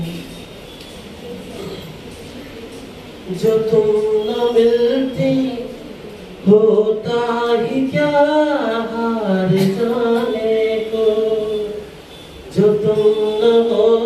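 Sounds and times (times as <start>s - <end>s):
man singing through pa: 3.3s - 14.0s.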